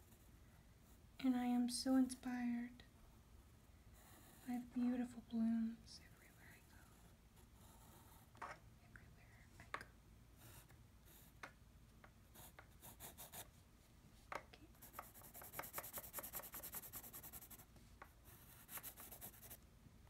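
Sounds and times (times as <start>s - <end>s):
pencil scratching on paper: 6.9s - 8.6s, 10.4s - 11.4s, 12.3s - 13.5s, 14.8s - 19.6s.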